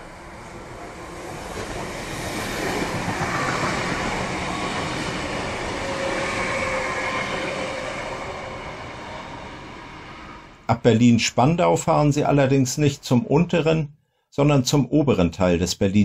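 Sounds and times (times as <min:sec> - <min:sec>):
electric train passing: 0:00.0 - 0:10.7.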